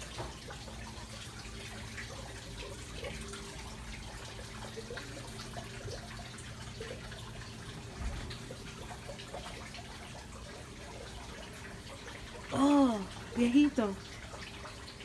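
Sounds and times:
water trickling and dripping: 0.0s - 15.0s.

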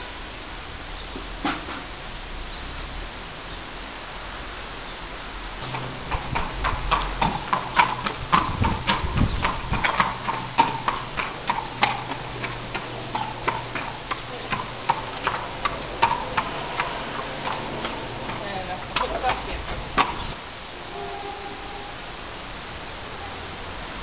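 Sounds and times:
horse hooves clopping on tarmac: 5.6s - 20.4s.

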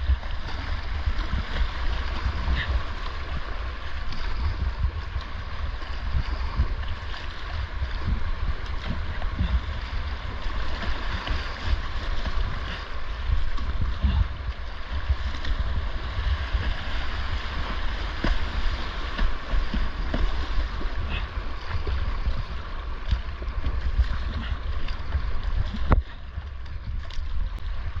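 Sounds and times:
paddle stroke splashes: 0.0s - 28.0s
wind buffeting microphone: 0.0s - 28.0s
whitewater creek rushing: 6.4s - 26.0s.

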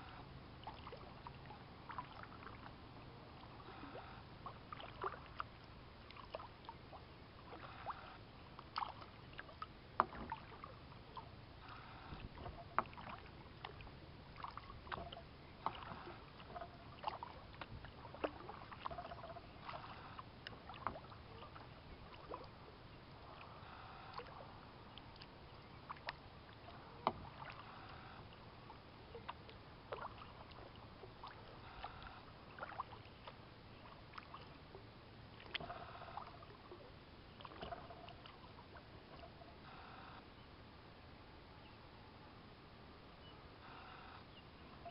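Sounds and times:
paddle splashing in water: 0.0s - 40.0s.

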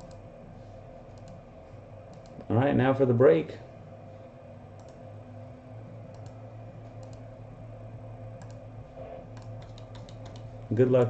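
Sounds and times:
low electrical hum: 0.0s - 11.0s
faint clicks: 1.1s - 1.4s, 2.1s - 2.5s, 6.1s - 7.3s.

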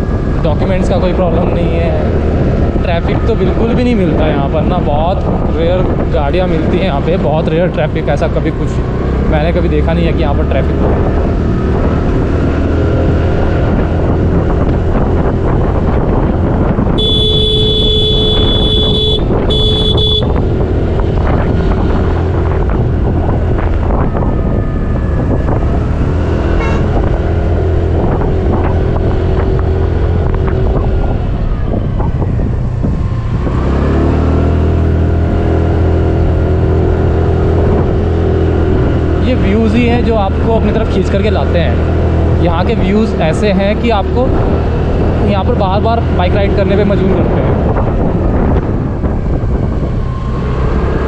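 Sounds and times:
wind and road noise: 0.0s - 51.0s
scooter horn: 16.9s - 20.4s, 26.6s - 27.0s
scooter engine running: 17.0s - 20.8s.

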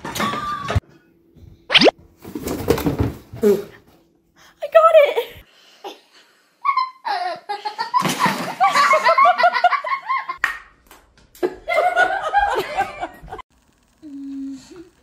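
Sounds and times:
people laughing: 6.7s - 10.4s, 11.4s - 13.4s.

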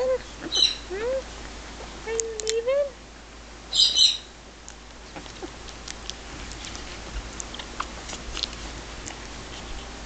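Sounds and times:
puppies squirming on towel: 4.6s - 10.0s.

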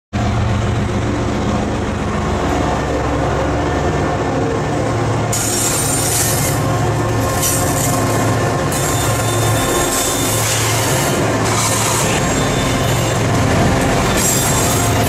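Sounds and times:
rumble of rolling rail cars: 0.1s - 15.0s
steel wheels hissing on rail: 5.1s - 15.0s.

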